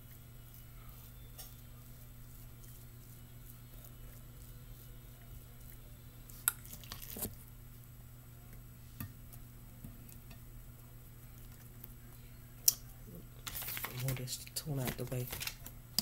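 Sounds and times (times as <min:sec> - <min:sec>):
spoon scraping rice: 0:00.0 - 0:07.4
low steady hum: 0:00.0 - 0:16.0.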